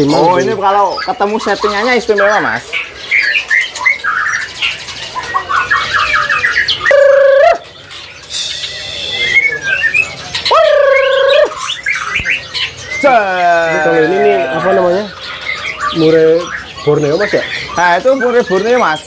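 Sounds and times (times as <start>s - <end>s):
caged birds chirping and trilling: 0.0s - 19.0s
harsh bird squawks: 0.0s - 19.0s.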